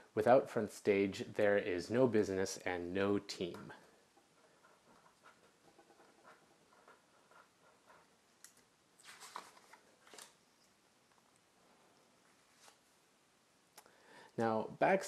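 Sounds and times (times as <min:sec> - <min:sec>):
pen writing on paper: 0:04.3 - 0:08.1
paper card rustling: 0:09.0 - 0:10.4.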